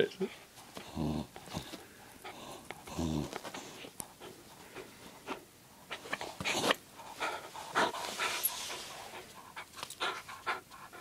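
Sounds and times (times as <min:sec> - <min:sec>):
dog panting: 0:00.3 - 0:11.0.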